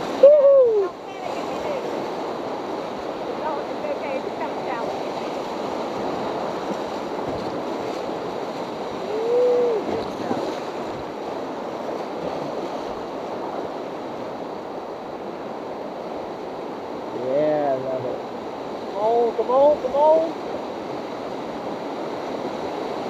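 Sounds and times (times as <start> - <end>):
whitewater rapids rushing: 0.0 - 23.0
person shouting: 0.2 - 0.9, 9.1 - 9.9.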